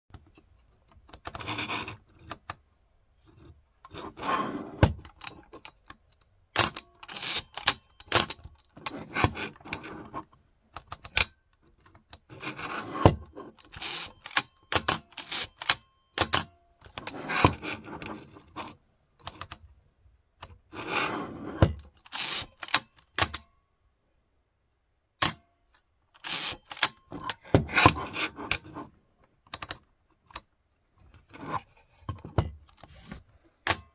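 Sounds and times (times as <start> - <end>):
camera advance lever ratcheting: 13.6 - 16.4, 22.0 - 23.4, 26.2 - 27.0.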